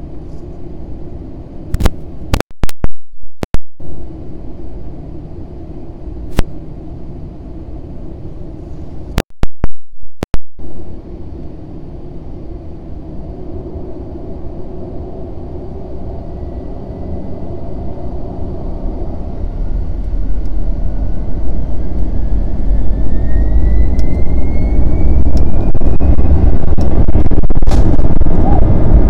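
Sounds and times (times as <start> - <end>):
jet engines rumbling: 0.0 - 2.4, 3.8 - 9.2, 10.6 - 29.0
microphone pops: 9.2 - 10.4.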